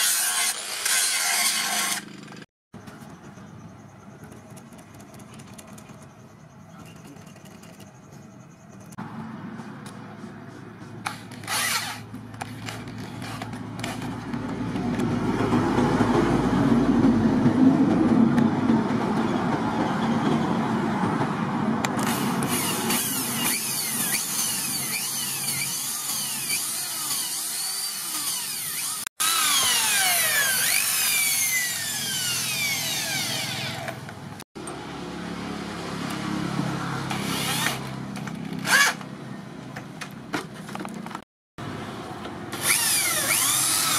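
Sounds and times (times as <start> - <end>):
electric drill boring into wood: 0.0 - 2.2, 11.4 - 12.0, 22.0 - 33.9, 37.1 - 37.9, 38.6 - 39.0, 42.6 - 43.9.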